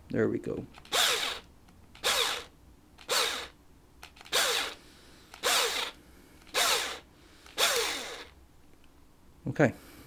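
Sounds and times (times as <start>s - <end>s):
electric drill whirring: 0.8s - 8.4s.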